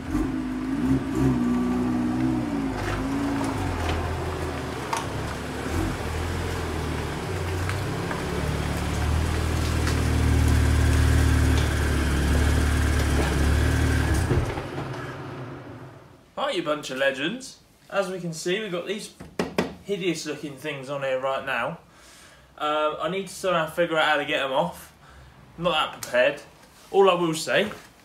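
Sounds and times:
car engine running at low speed: 0.0s - 16.1s.

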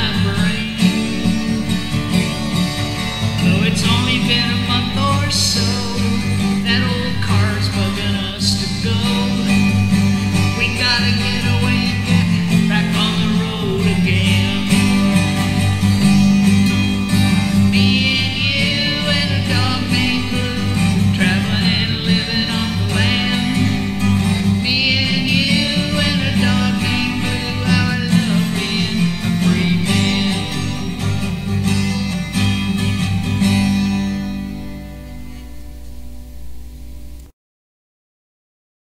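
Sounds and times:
person singing: 0.0s - 31.6s
acoustic guitar strumming: 0.0s - 37.3s.

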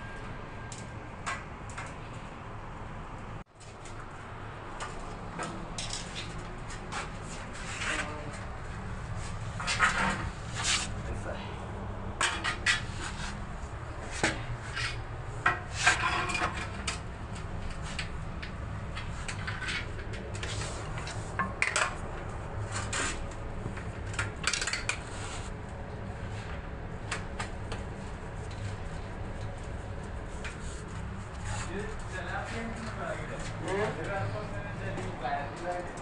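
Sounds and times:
metal frame clinking and scraping: 14.1s - 17.0s.

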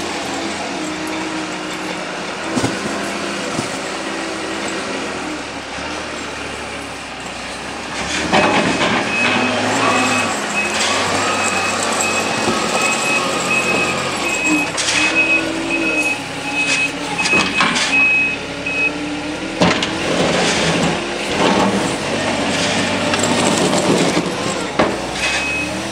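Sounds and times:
diesel engine running: 0.0s - 25.9s
reversing alarm beeping: 8.4s - 19.1s, 25.3s - 25.9s.

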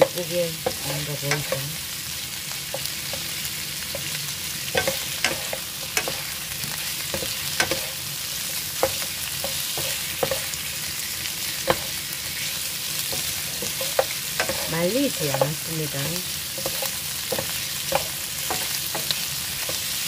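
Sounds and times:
utensil clicking against pan: 0.0s - 1.7s, 4.7s - 8.0s, 13.1s - 19.8s
food sizzling in a frying pan: 0.0s - 20.0s.

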